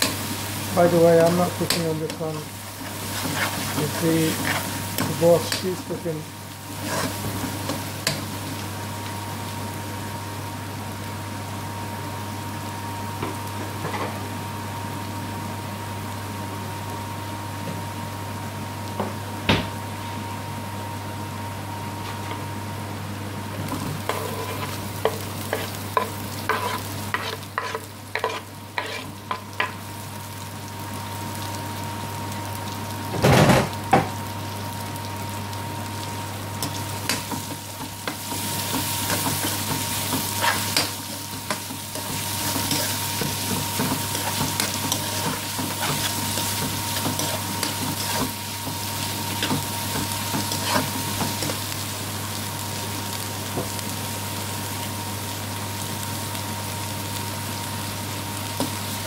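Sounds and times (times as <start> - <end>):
onions sizzling: 0.0 - 59.0
spatula scraping a pan: 2.8 - 4.8, 6.8 - 7.3, 24.0 - 29.2.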